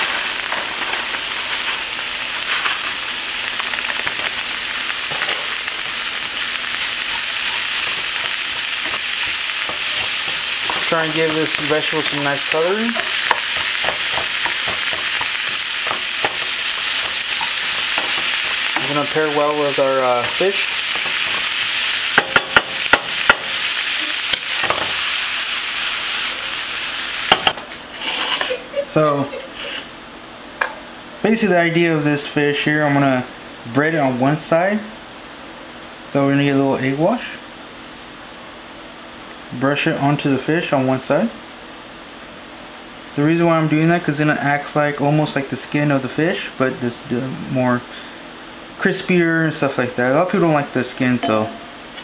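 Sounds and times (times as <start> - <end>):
food sizzling in frying pan: 0.0 - 28.6
wooden spatula scraping pan: 6.8 - 19.2, 27.9 - 28.6.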